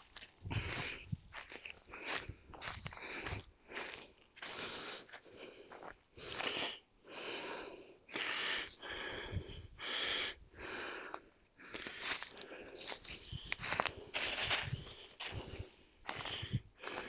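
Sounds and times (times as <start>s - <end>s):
person breathing hard: 0.4s - 17.0s
footsteps on leaf litter: 11.9s - 17.0s.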